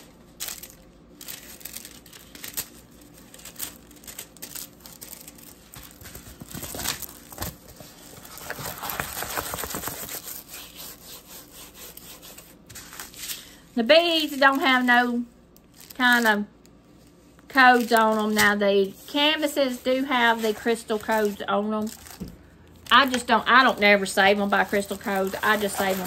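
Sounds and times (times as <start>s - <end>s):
plastic packaging crinkling: 0.0s - 10.8s, 14.2s - 26.0s
canvas rustling: 22.9s - 26.0s.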